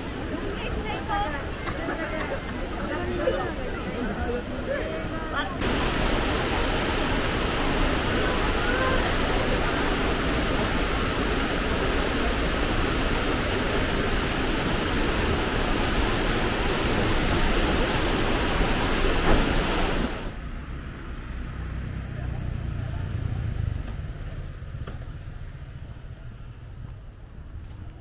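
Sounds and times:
waterfall rushing: 0:05.0 - 0:20.4.

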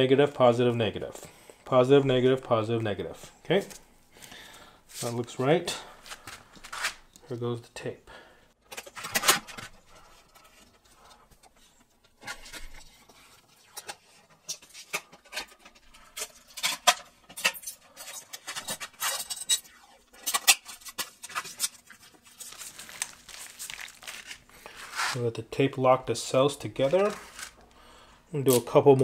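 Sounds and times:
tape unwinding rasp: 0:17.6 - 0:25.2
tape ripping off roll: 0:20.2 - 0:25.2.

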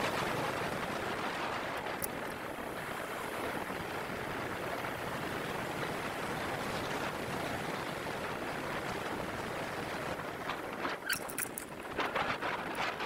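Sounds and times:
wind on microphone: 0:00.0 - 0:13.0
bike clicks and rattles: 0:01.8 - 0:02.5, 0:10.7 - 0:13.0.

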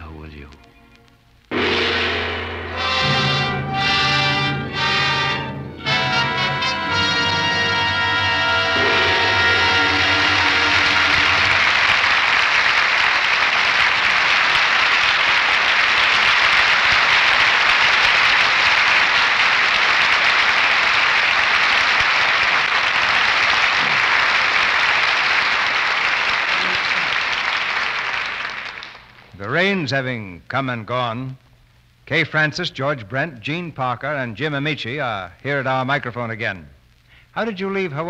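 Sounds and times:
audience applauding: 0:05.1 - 0:29.3.

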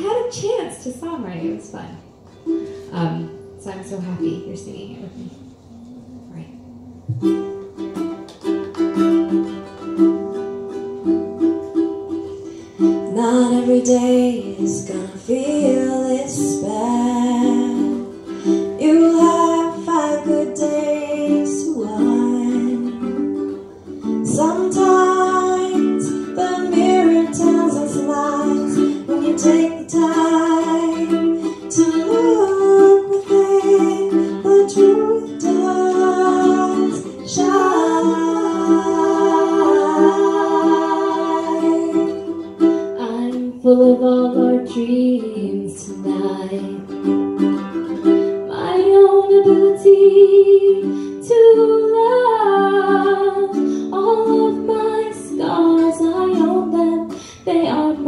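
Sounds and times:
strummed acoustic string instrument: 0:00.0 - 0:05.0, 0:07.0 - 0:58.0
women singing in harmony: 0:13.0 - 0:47.2, 0:48.4 - 0:58.0.

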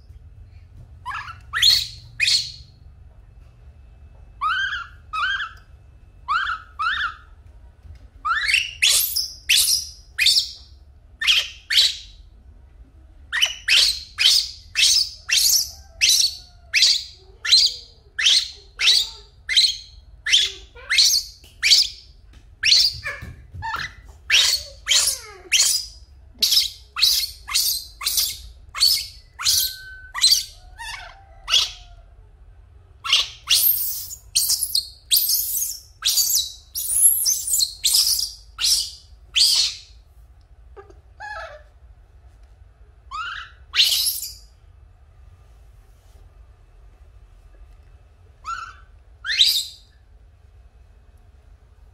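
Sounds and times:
baby monkey crying: 0:04.4 - 0:05.6, 0:06.2 - 0:07.3, 0:22.6 - 0:32.1, 0:33.0 - 0:39.9, 0:40.8 - 0:41.7, 0:48.4 - 0:49.8.

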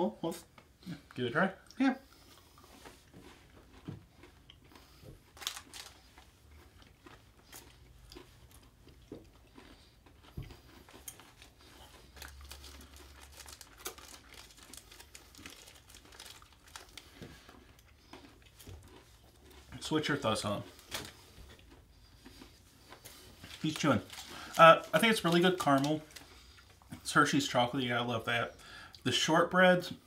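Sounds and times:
chewing crunchy chocolate: 0:00.4 - 0:29.3
candy wrappers crinkling: 0:04.7 - 0:08.7, 0:10.7 - 0:21.8, 0:22.9 - 0:27.6.

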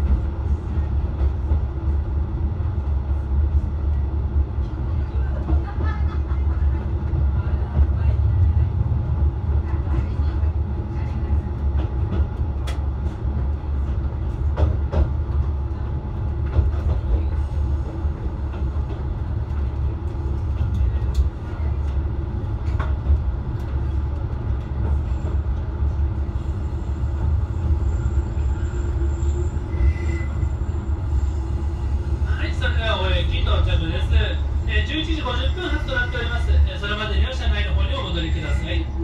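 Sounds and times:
diesel railcar rumbling: 0:00.0 - 0:39.0
faint high brake squeal: 0:27.8 - 0:31.4.

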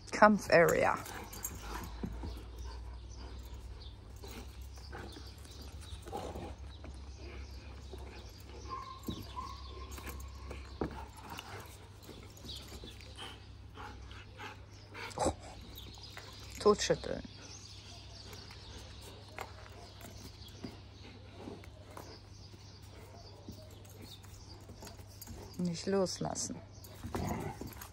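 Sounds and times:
dogs scuffling: 0:00.6 - 0:13.8.

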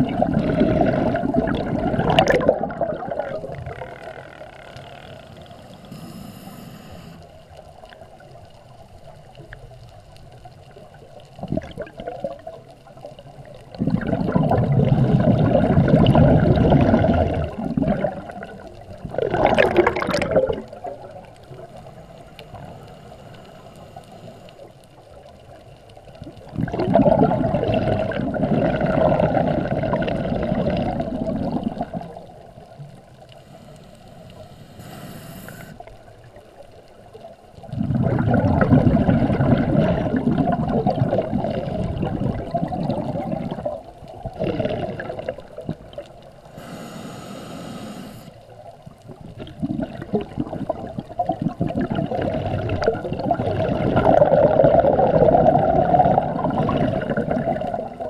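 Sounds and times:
exhaled bubbles gurgling underwater: 0:00.0 - 0:58.0
regulator hiss: 0:05.4 - 0:07.5, 0:33.3 - 0:36.0, 0:46.4 - 0:48.5.

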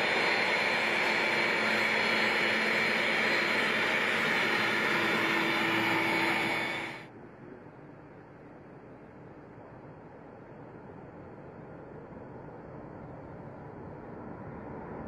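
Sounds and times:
jet engines running: 0:00.0 - 0:07.1.

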